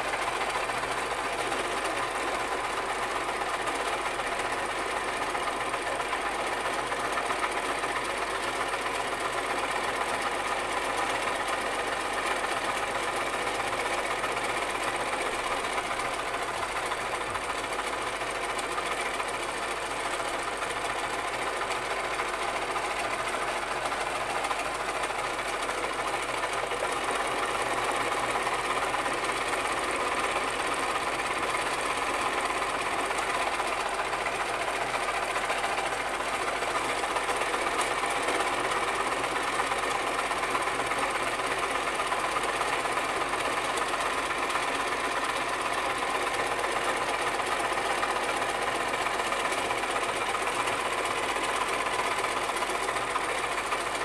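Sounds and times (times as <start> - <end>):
sewing machine running: 0.0 - 54.0.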